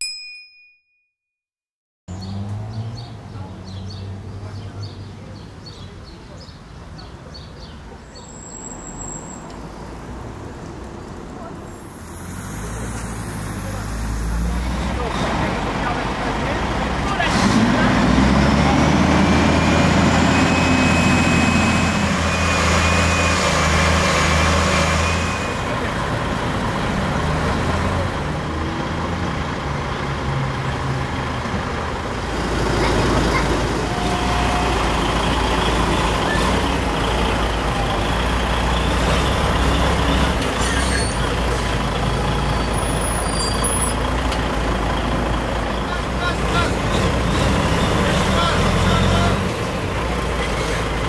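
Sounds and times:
truck diesel engine running: 0:12.5 - 0:40.6, 0:41.2 - 0:51.0.

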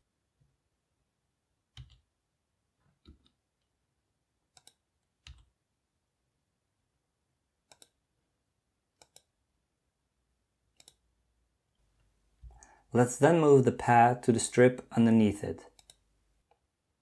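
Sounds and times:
computer keyboard and mouse clicks: 0:01.7 - 0:02.1, 0:02.9 - 0:03.4, 0:04.5 - 0:05.5, 0:07.6 - 0:08.0, 0:09.0 - 0:09.3, 0:10.7 - 0:11.0, 0:15.7 - 0:16.6.

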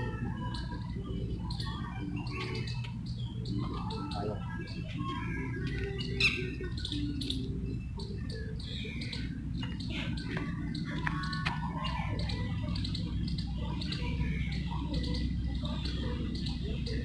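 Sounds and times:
birds chirping and calling: 0:00.0 - 0:17.0.

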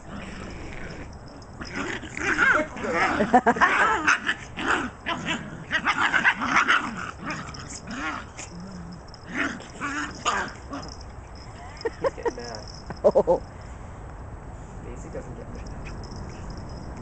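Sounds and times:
puppies calling while play-fighting: 0:00.0 - 0:13.5.

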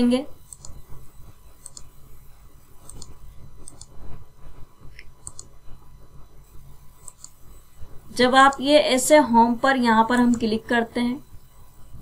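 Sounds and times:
low steady hum: 0:00.0 - 0:12.0
computer mouse clicks: 0:00.5 - 0:00.8, 0:01.6 - 0:01.9, 0:02.8 - 0:03.9, 0:05.0 - 0:05.5, 0:07.0 - 0:07.4, 0:10.3 - 0:10.5.

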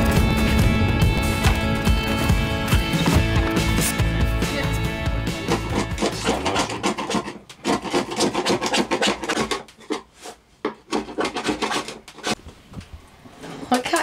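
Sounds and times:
scraper blade scraping hard surface: 0:05.4 - 0:12.4.

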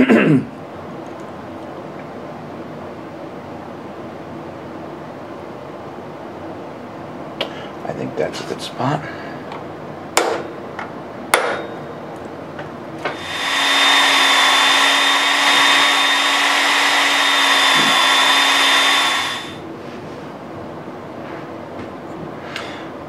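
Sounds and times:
electric drill drilling into metal: 0:13.1 - 0:19.6.

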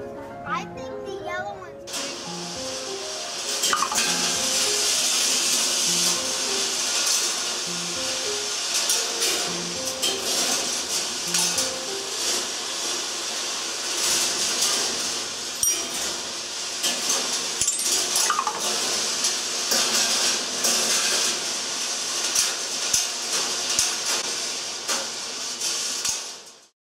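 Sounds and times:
balls rolling on metal tracks: 0:01.9 - 0:26.7
balls clicking and clacking: 0:03.6 - 0:04.9, 0:17.6 - 0:18.7.

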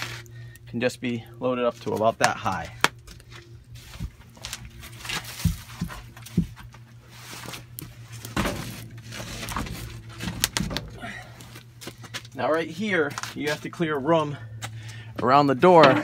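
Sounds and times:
steady low hum: 0:00.0 - 0:16.0
logs knocking and scraping: 0:04.0 - 0:12.3.

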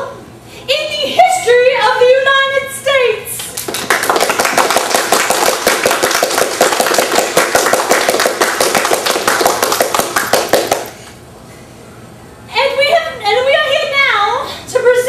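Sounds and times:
group of people clapping: 0:03.4 - 0:11.0.

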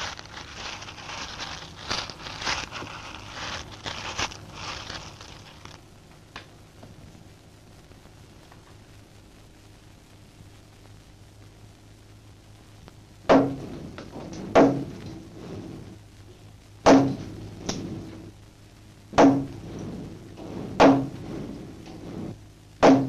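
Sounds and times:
low steady hum: 0:00.0 - 0:23.0
hammer striking wooden post: 0:19.2 - 0:19.5.

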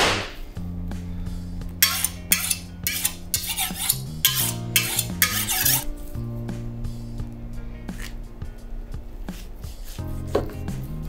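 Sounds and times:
background music: 0:00.0 - 0:11.0
knife honing on steel: 0:01.8 - 0:05.9.

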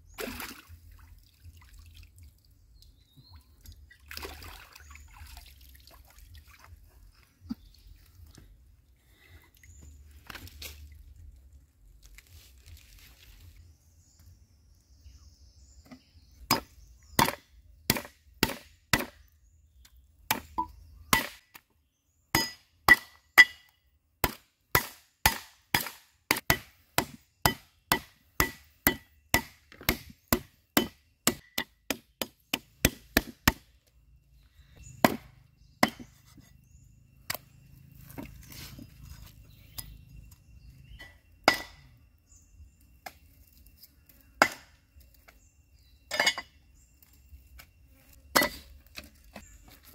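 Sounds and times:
cleaver chopping on wooden block: 0:16.5 - 0:19.2, 0:20.3 - 0:21.5, 0:24.2 - 0:33.7, 0:35.0 - 0:36.2.

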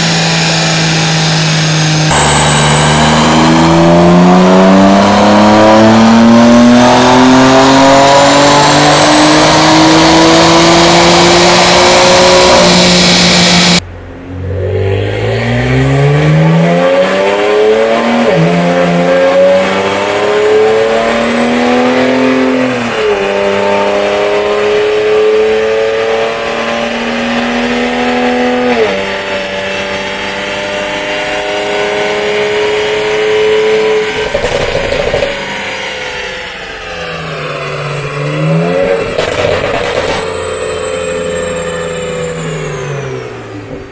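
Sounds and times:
car engine revving on dynamometer: 0:00.0 - 0:43.9
dyno roller noise: 0:34.0 - 0:36.2.

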